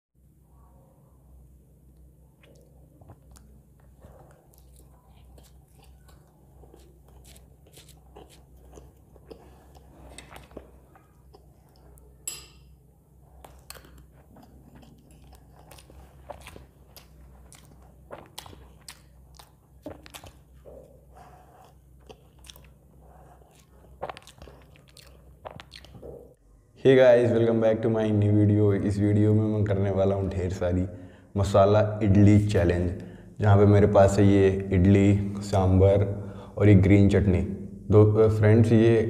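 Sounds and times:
steady low hum: 0.2s - 39.0s
person chewing food: 2.4s - 26.4s.

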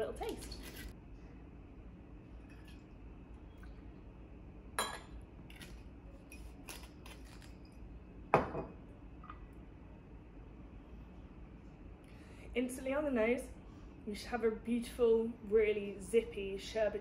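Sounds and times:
glass clink: 4.8s - 5.2s
bottle knocking on counter: 8.3s - 8.7s.

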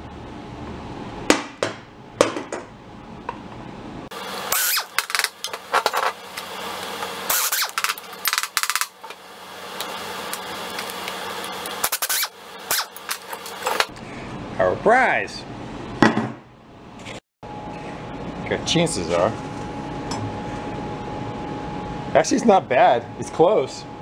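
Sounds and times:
pneumatic impact wrench bursts: 4.5s - 5.6s, 7.0s - 9.0s, 11.6s - 13.8s.

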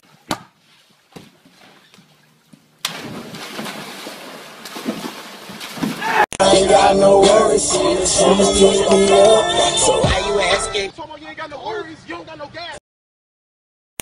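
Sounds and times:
water splashing in a pool: 0.6s - 6.3s
hip-hop music with rapping: 6.4s - 12.8s.

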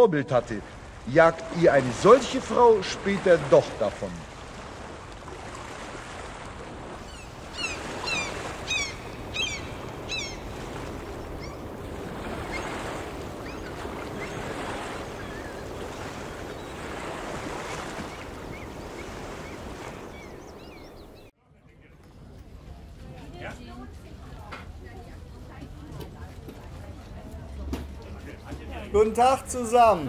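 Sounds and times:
harbour water washing: 0.0s - 21.3s, 22.1s - 30.0s
wind: 0.0s - 30.0s
birds calling: 6.9s - 21.3s.

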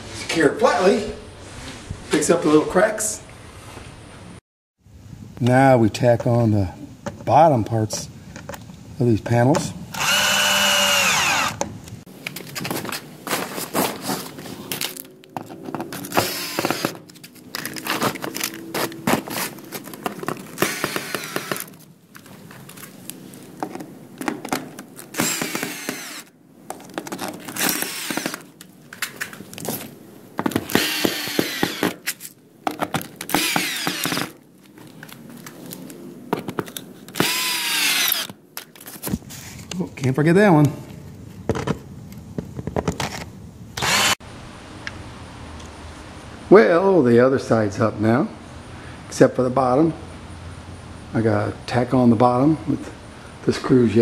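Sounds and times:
cordless drill motor whine: 9.9s - 11.6s, 16.1s - 17.0s, 20.6s - 21.8s, 25.1s - 26.3s, 27.6s - 28.4s, 30.7s - 32.0s, 33.3s - 34.3s, 37.2s - 38.3s, 43.8s - 44.2s
handling clicks and knocks: 14.7s - 25.7s, 26.6s - 37.3s.

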